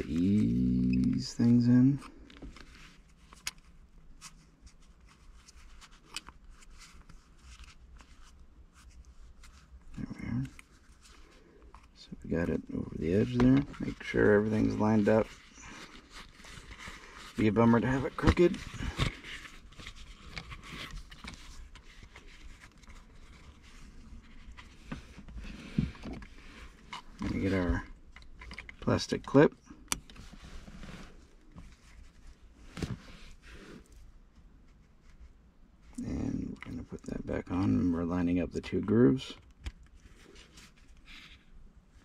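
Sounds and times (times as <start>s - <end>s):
leather rustling and scraping: 2.6s - 28.2s, 30.2s - 34.1s.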